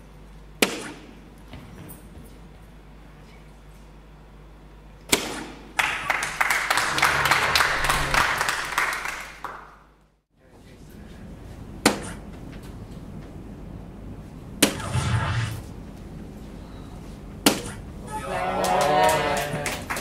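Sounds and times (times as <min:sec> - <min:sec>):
darts striking dartboard: 0:00.6 - 0:01.2, 0:17.4 - 0:17.8
loud noisy clattering: 0:06.7 - 0:09.4.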